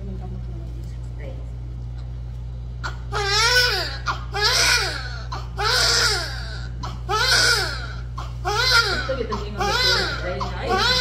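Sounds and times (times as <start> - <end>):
steady low hum: 0.0 - 11.0
newborn baby crying: 2.8 - 11.0.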